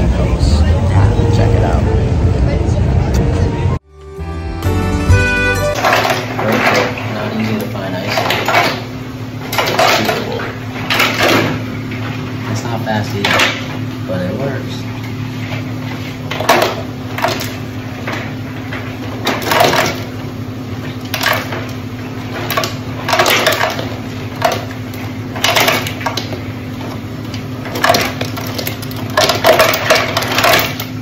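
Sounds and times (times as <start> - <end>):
low machine hum: 0.0 - 31.0
ice cubes clattering into bucket: 5.8 - 8.8.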